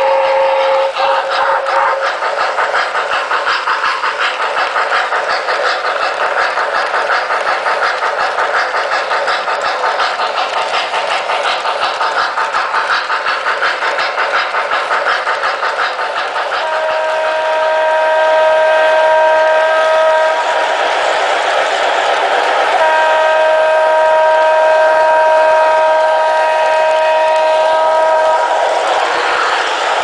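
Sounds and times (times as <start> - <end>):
locomotive whistle: 0.0 - 2.1, 16.6 - 20.6, 22.8 - 28.6
model steam locomotive chuffing: 0.0 - 30.0.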